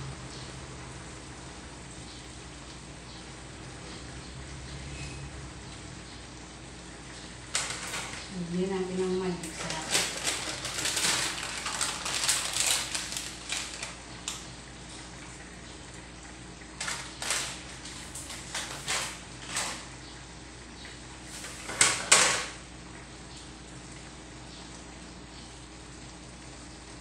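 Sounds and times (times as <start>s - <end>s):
kitchen utensils knocking and clicking: 21.6s - 22.5s.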